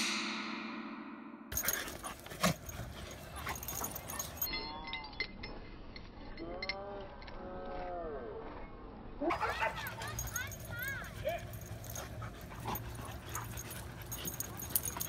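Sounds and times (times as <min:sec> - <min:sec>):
metal chain collar jingling: 0:01.5 - 0:07.1, 0:09.3 - 0:15.0.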